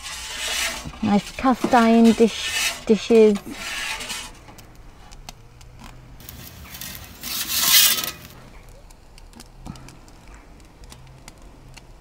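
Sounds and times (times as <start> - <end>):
metal pizza peel scraping stone: 0.0 - 5.1, 6.2 - 8.4.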